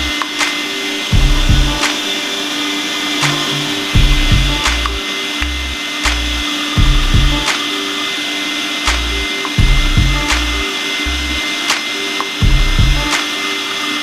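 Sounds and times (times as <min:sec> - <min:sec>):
music with bass and beat: 0:00.0 - 0:00.5, 0:01.1 - 0:01.9, 0:03.2 - 0:07.6, 0:08.9 - 0:11.4, 0:12.4 - 0:13.2.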